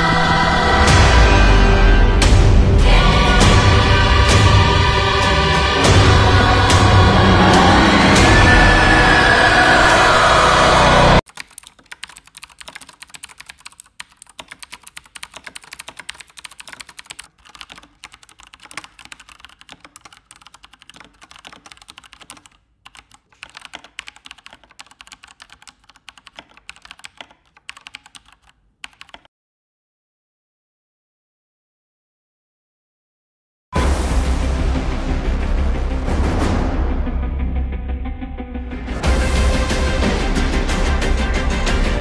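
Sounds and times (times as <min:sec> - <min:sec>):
mechanical keyboard typing: 0:11.2 - 0:29.3.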